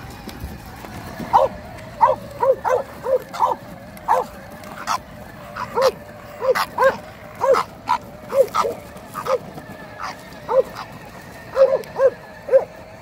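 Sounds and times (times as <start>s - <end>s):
dog barking in high yips: 1.3s - 4.3s.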